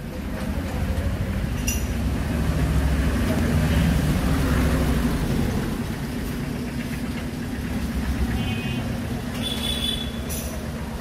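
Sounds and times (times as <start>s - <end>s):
engine running nearby: 0.0s - 11.0s
traffic rumble: 0.0s - 11.0s.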